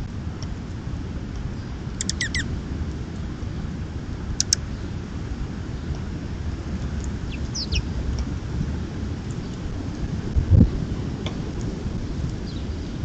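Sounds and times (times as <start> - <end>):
distant road traffic rumble: 0.0 - 13.0
small birds chirping: 1.5 - 2.5, 4.4 - 5.0, 6.8 - 8.2, 12.0 - 13.0
sharp ticks: 2.0 - 2.4, 4.4 - 4.6.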